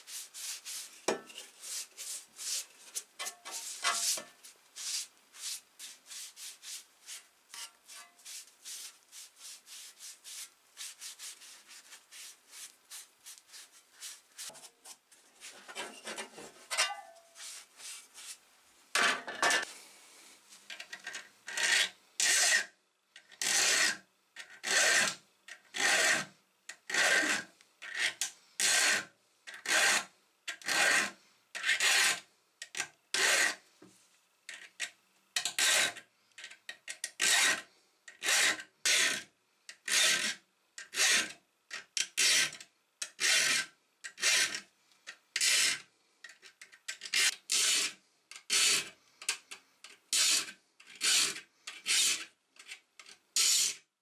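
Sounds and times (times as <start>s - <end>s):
file rasping on saw teeth: 21.5s - 22.7s, 23.4s - 26.3s, 26.9s - 32.2s, 33.1s - 33.6s, 35.5s - 36.0s, 37.1s - 41.4s, 42.2s - 44.6s, 45.4s - 45.8s, 47.1s - 48.9s, 50.1s - 52.3s, 53.4s - 53.8s.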